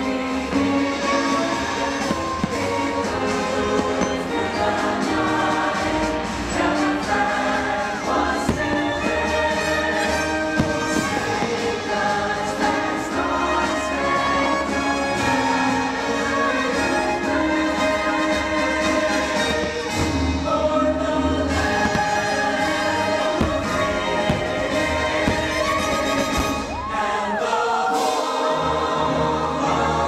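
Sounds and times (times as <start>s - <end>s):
orchestral music with choir: 0.0s - 30.0s
firework bangs: 8.2s - 12.2s, 21.5s - 26.8s.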